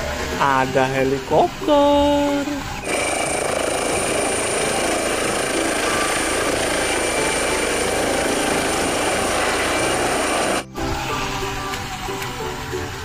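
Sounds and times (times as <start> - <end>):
helicopter rotor and turbine whine: 2.8 - 10.8.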